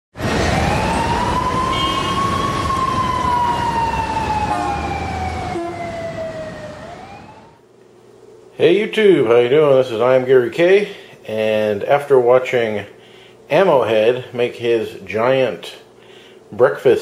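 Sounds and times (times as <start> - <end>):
siren wailing: 0.2 - 7.6.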